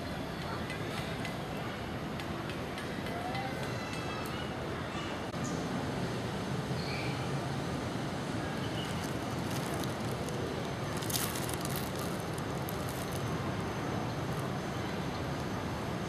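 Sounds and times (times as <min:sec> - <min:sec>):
brief crackle: 0:08.8 - 0:13.3.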